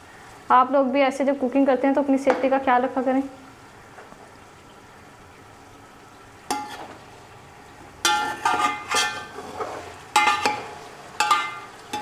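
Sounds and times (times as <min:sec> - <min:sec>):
food sizzling: 0:00.0 - 0:12.0
metal spatula scraping a pot: 0:06.5 - 0:07.0, 0:08.0 - 0:12.0.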